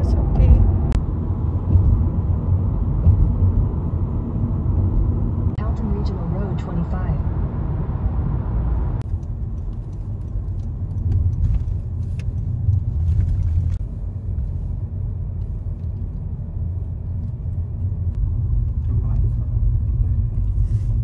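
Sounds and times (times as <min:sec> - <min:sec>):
car cabin road rumble: 0:00.0 - 0:21.0
faint clicks and rattles: 0:09.0 - 0:13.8.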